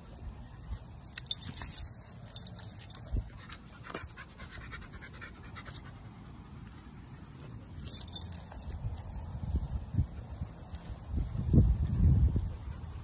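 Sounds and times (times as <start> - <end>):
dog panting: 3.2 - 7.6.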